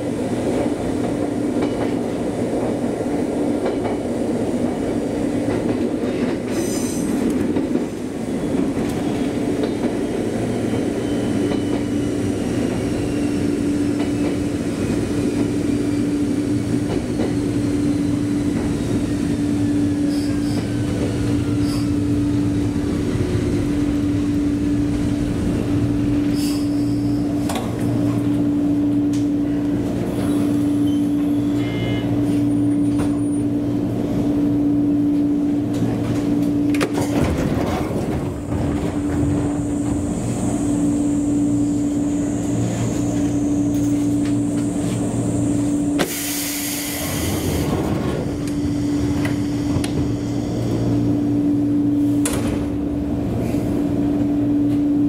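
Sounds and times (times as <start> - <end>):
electric train equipment humming: 27.0 - 55.0
loud burst of hiss: 46.0 - 47.7.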